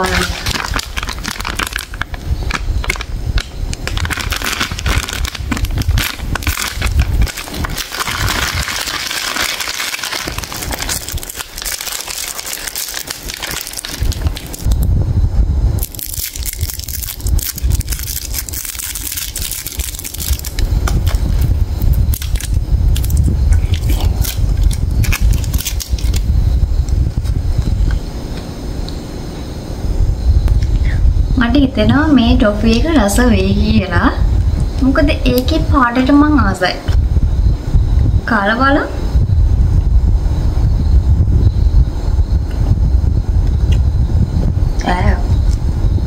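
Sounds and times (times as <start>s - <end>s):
plastic packaging crinkling: 0.0s - 14.9s, 15.8s - 26.3s
sweet wrapper pulled open: 0.0s - 14.9s, 15.8s - 26.3s.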